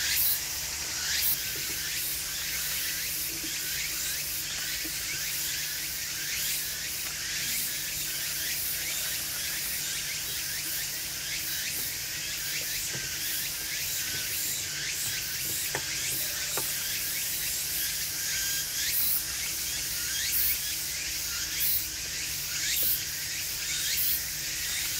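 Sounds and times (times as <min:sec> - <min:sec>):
insects chirping: 0:00.0 - 0:24.9.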